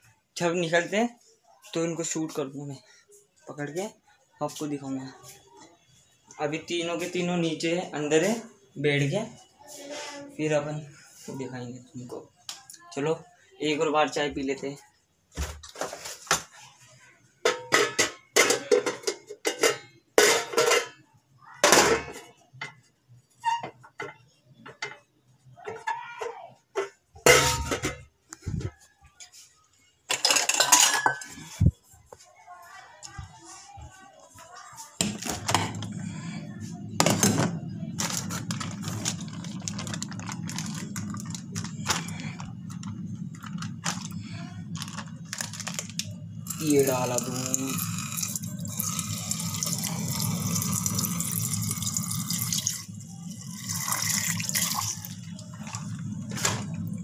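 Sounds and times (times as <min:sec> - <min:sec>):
pots and utensils clattering: 0:15.4 - 0:16.6, 0:17.4 - 0:28.2, 0:30.1 - 0:31.7, 0:35.0 - 0:36.3, 0:37.0 - 0:57.0.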